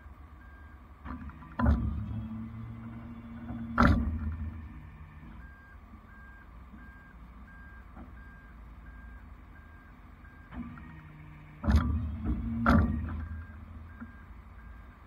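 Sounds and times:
truck engine rumbling: 0.0s - 15.0s
back-up alarm beeping: 2.9s - 10.5s, 12.4s - 15.0s.

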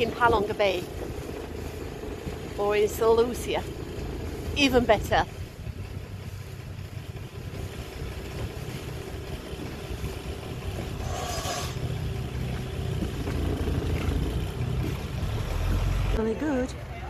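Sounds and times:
motorboat engine rumble: 0.0s - 17.0s
brief hiss: 11.0s - 11.8s.

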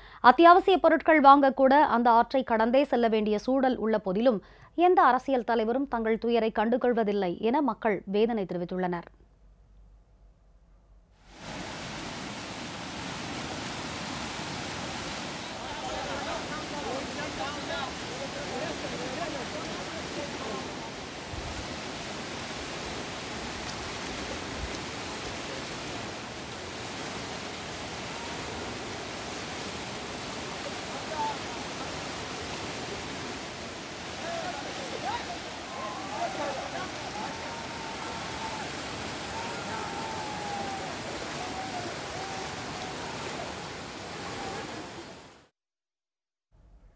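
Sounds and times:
floodwater rushing: 11.3s - 45.5s.

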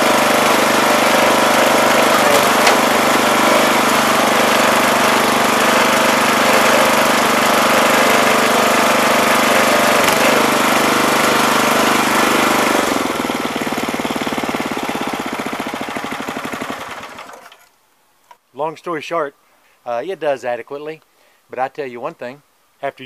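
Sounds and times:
small gas engine running: 0.0s - 17.6s.

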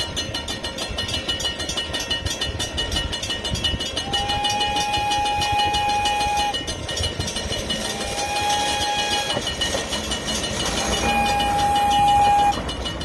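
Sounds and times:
crossing bell ringing: 0.0s - 13.0s
train rumbling: 0.0s - 13.0s
train horn blast: 4.0s - 6.6s, 7.9s - 9.5s, 10.8s - 12.6s.

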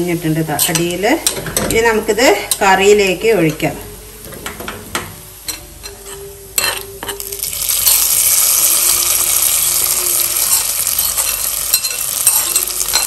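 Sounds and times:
hot oil sizzling: 0.0s - 4.3s, 5.2s - 13.0s
metal spoon scraping iron pan: 9.9s - 13.0s.

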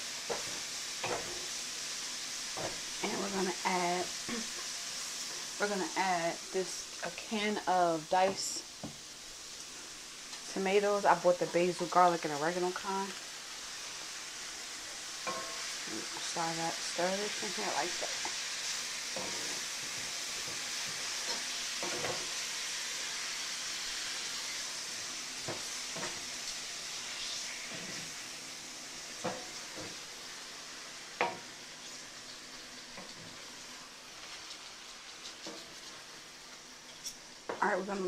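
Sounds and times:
vegetables sizzling in skillet: 0.0s - 38.0s
spatula scraping and knocking pan: 0.2s - 1.6s, 2.5s - 3.3s, 15.2s - 16.4s, 17.3s - 22.4s, 34.2s - 36.1s.

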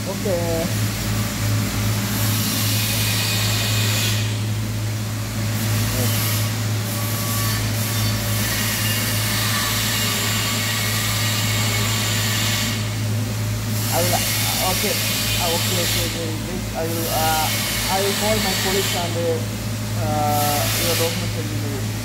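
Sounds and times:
workshop machinery humming: 0.0s - 22.0s
even hiss: 13.9s - 22.0s.

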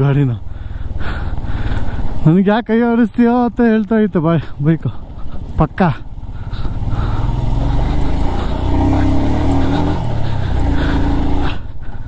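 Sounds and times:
wind and road rumble: 0.0s - 12.0s
motorcycle engine under throttle: 5.0s - 11.8s.

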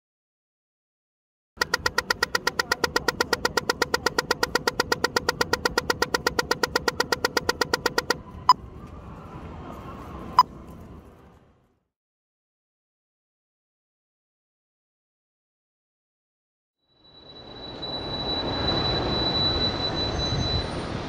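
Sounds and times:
crossing signal ticking: 1.6s - 8.6s
faint traffic: 1.6s - 11.8s.

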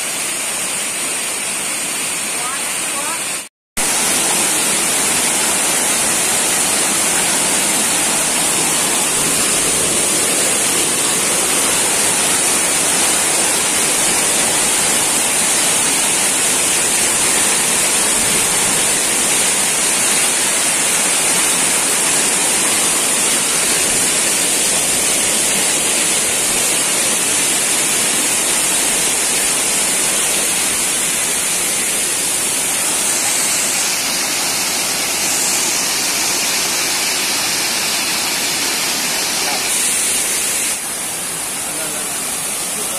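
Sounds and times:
waterfall rushing: 0.0s - 42.9s.

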